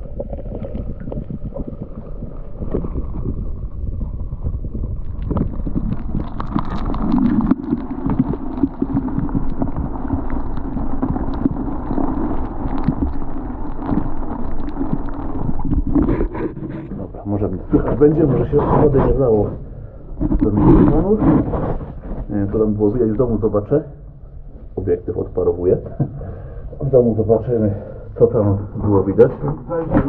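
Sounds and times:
water sloshing and gurgling: 0.0s - 30.0s
camera handling rumble and crackle: 13.9s - 17.1s.

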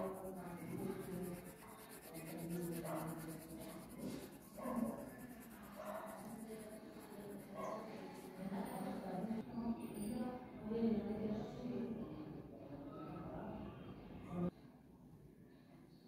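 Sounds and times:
pencil scratching on paper: 0.0s - 9.2s
faint pitched background tone: 0.0s - 10.4s.

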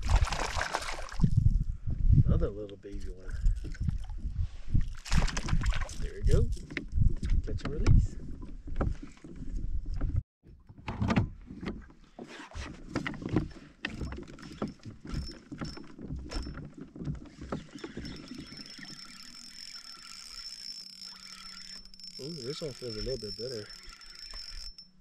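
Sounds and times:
water splashing against kayak hull: 0.0s - 1.4s
knocks and clatter from boat gear: 5.1s - 19.6s.

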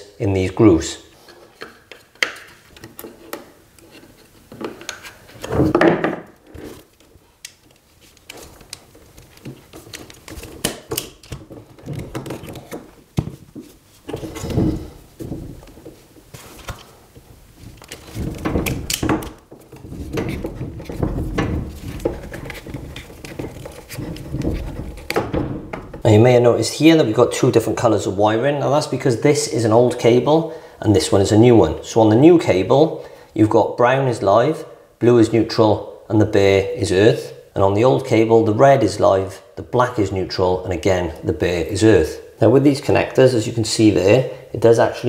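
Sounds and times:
cable handling noises: 1.2s - 26.1s
wire strippers stripping cable: 6.4s - 13.0s, 17.7s - 25.4s.

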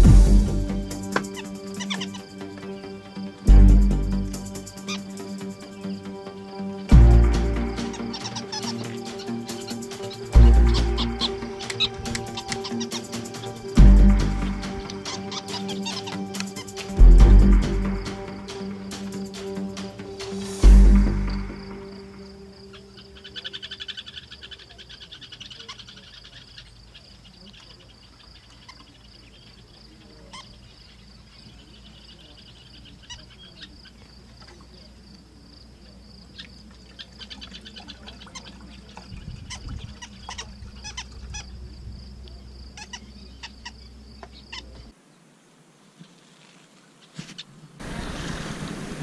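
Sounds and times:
high-pitched chirring: 0.0s - 23.2s
frogs and insects calling: 0.0s - 45.3s.

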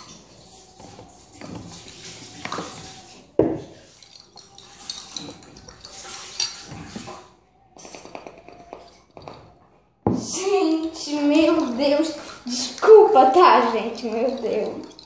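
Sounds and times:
spoon clinking against a cup: 0.8s - 7.2s, 7.8s - 9.7s, 14.0s - 15.0s.

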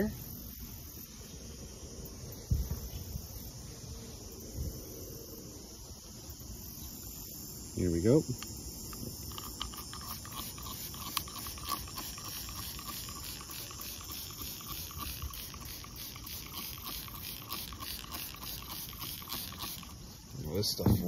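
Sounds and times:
insects chirping: 0.0s - 21.0s
spray bottle squirting: 8.4s - 20.2s, 20.8s - 21.0s.

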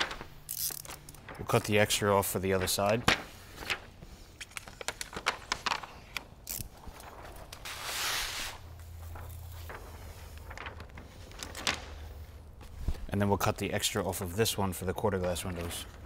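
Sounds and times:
plastic film crackling and rustling: 0.0s - 14.3s
plastic film swish: 6.9s - 13.1s.

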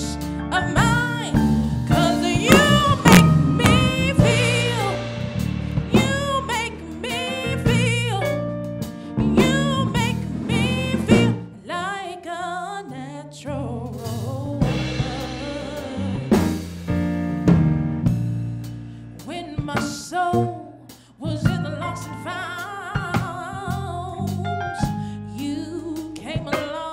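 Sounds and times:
drum kit: 0.0s - 11.6s, 13.9s - 26.9s
electric bass guitar: 0.0s - 11.6s, 13.4s - 19.6s, 23.2s - 26.3s
woman singing soulfully: 0.0s - 16.6s, 19.2s - 26.9s.

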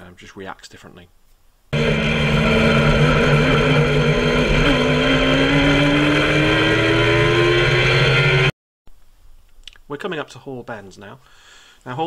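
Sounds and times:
motorcycle engine accelerating: 1.8s - 8.6s.

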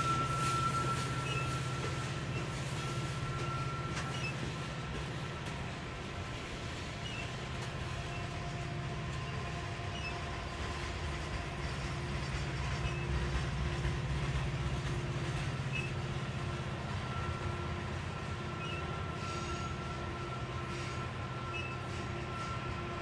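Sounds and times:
thin wheel squeals: 0.0s - 4.7s, 6.7s - 8.6s, 9.2s - 10.4s, 12.6s - 13.3s, 15.6s - 16.1s, 17.1s - 22.6s
steel wheels rumbling on rail: 0.0s - 23.0s.

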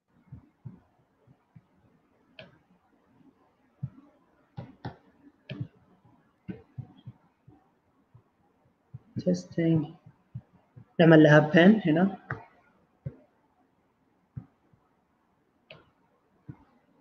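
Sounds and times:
faint background hiss: 0.0s - 17.0s.

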